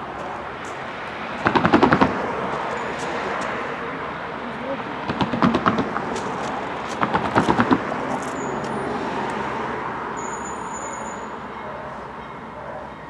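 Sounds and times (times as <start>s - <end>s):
motor vehicle rumble: 0.0s - 10.7s
sharp knocks: 5.0s - 7.9s.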